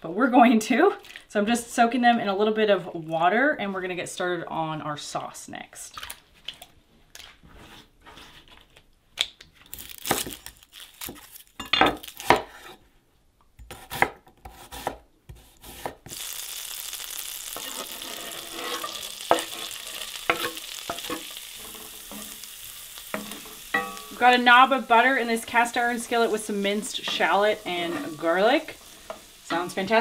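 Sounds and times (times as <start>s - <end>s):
food sizzling in skillet: 16.1s - 30.0s.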